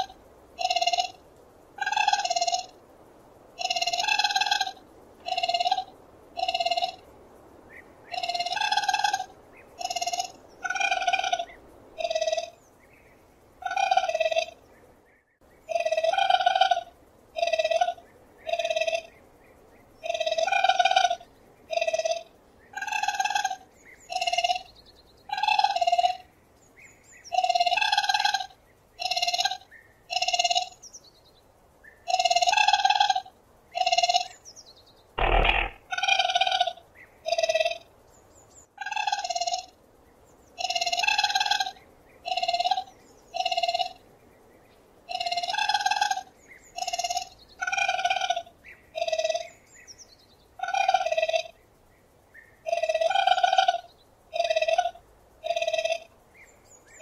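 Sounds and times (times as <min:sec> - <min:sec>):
raccoon high-pitched calls: 0:01.8 - 0:02.8, 0:03.6 - 0:07.0, 0:08.1 - 0:12.6, 0:20.0 - 0:24.7, 0:45.1 - 0:49.6, 0:50.6 - 0:51.5, 0:52.6 - 0:56.1.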